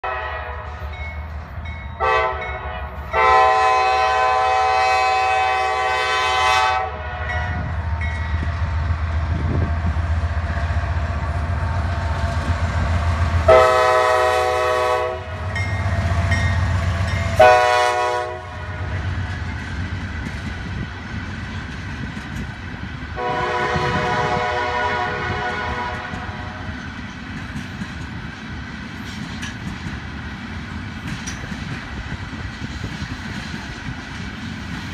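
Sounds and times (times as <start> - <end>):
locomotive air horn blowing: 0.0 - 0.9, 2.0 - 7.7, 13.5 - 15.5, 17.3 - 19.0, 23.2 - 26.7
rail cars clattering on rails: 0.1 - 34.9.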